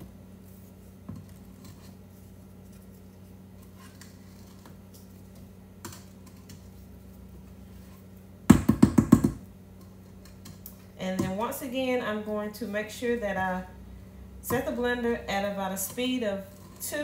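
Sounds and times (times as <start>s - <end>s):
low steady hum: 0.0s - 17.0s
spatula scraping metal bowl: 15.3s - 17.0s.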